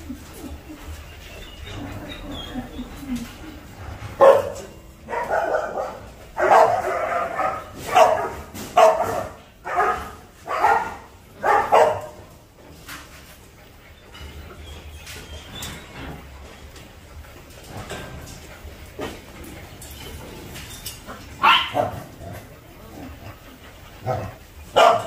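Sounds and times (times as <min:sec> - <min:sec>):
dog barking: 0:04.2 - 0:12.2, 0:21.4 - 0:22.0, 0:24.1 - 0:25.0.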